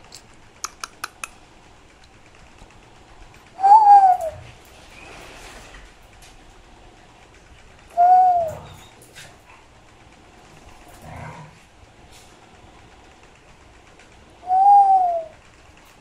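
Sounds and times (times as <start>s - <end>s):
dog whining: 3.6s - 4.6s, 7.9s - 9.2s.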